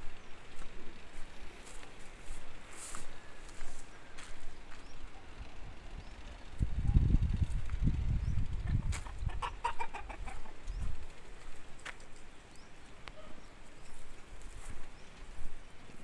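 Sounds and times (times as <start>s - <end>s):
low microphone rumble: 0.0s - 16.0s
chicken clucking: 8.6s - 11.1s.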